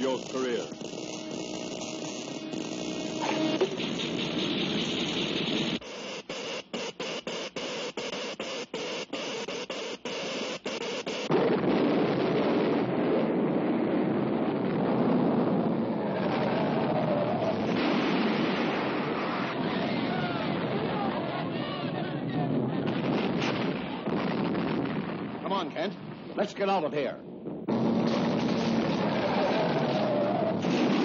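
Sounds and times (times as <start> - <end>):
pulsing electric crackle: 0.0 - 19.6, 27.4 - 31.0
earthquake rumble: 11.3 - 31.0.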